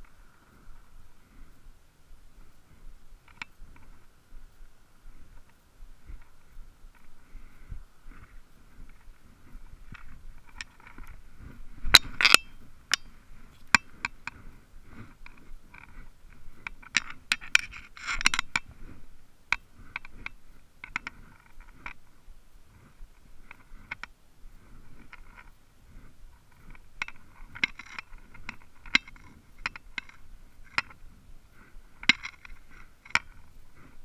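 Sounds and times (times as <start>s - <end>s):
rod and reel clicks: 2.4s - 34.0s.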